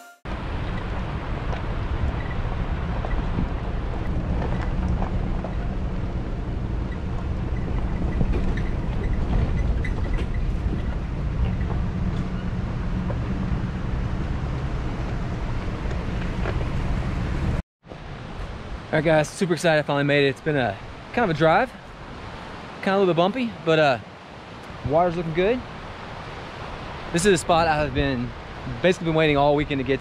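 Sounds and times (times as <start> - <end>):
wind on microphone: 0.3 - 17.6
vehicle engine: 0.3 - 18.8
tyres rumbling on dirt road: 0.3 - 30.0.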